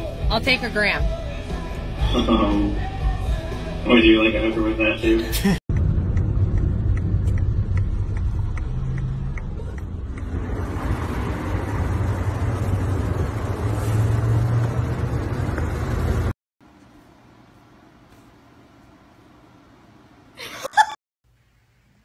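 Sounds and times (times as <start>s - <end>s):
car engine and road noise: 0.0s - 20.2s
light regular ticking: 5.7s - 10.4s.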